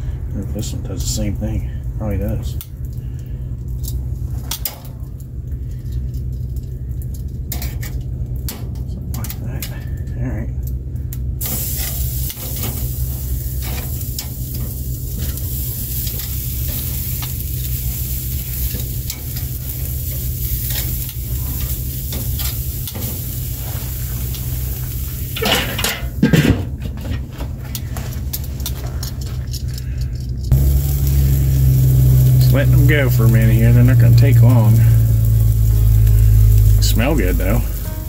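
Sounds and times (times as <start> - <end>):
grill lid metallic clatter: 4.4 - 5.2, 7.5 - 9.4, 13.6 - 29.4
metal tongs clicking on grate: 6.1 - 9.8
steaks sizzling on grill: 11.3 - 26.3, 30.5 - 38.0.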